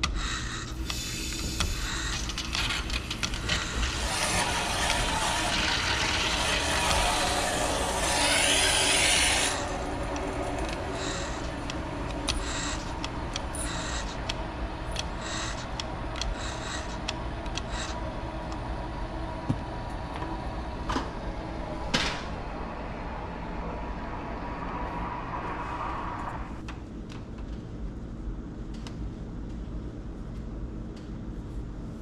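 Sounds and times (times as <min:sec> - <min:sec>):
water hissing through valve: 0:00.8 - 0:02.8.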